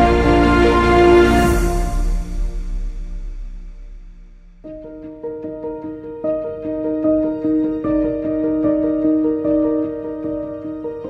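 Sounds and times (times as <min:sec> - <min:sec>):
sustained music chords: 0:00.0 - 0:05.4.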